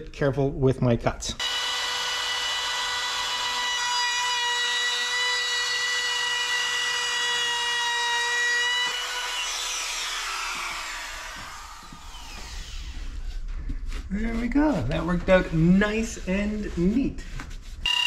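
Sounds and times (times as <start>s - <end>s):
trim router whining: 1.4s - 13.3s.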